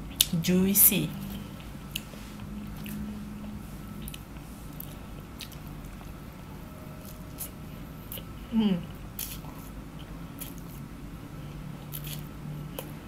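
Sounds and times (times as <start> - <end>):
low hum: 0.0 - 13.0
person chewing noodles: 1.3 - 7.5, 8.1 - 10.8, 11.8 - 13.0.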